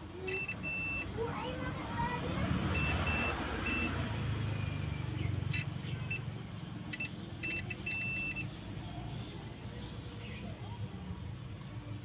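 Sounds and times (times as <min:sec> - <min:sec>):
multimeter beeps: 0:00.2 - 0:01.1, 0:02.7 - 0:04.0, 0:06.9 - 0:08.5.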